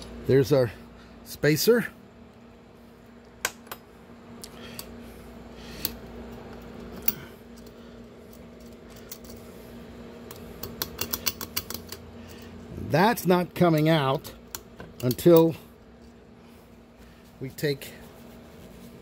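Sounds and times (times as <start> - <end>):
steady low hum: 0.0 - 19.0
small metal clicks: 10.3 - 12.4, 13.7 - 15.5.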